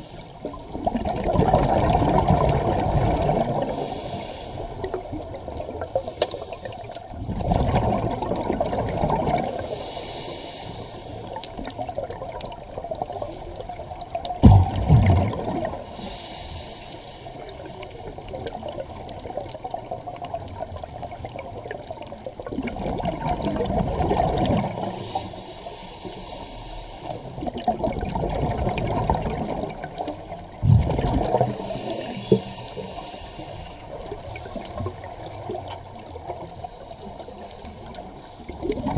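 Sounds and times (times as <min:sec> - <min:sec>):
bubbling exhalations: 0:00.7 - 0:03.9, 0:07.2 - 0:09.6, 0:14.4 - 0:15.8, 0:22.4 - 0:24.9, 0:27.4 - 0:32.9, 0:38.6 - 0:38.9
scuba regulator hissing inhalations: 0:03.6 - 0:05.0, 0:09.6 - 0:11.4, 0:15.8 - 0:17.8, 0:24.7 - 0:27.4, 0:31.4 - 0:34.8.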